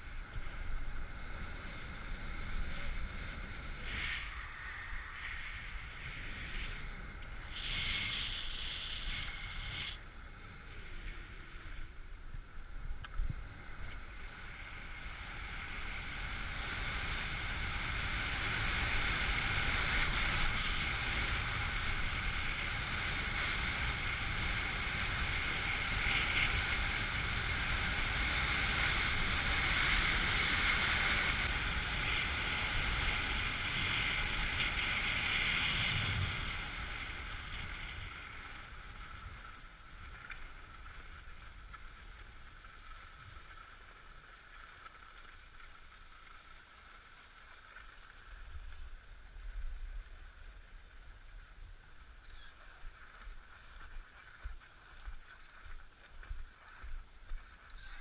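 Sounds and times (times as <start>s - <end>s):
skis hissing over snow: 0.0s - 12.7s, 13.4s - 51.4s, 52.2s - 58.0s
wind on microphone: 13.1s - 39.5s.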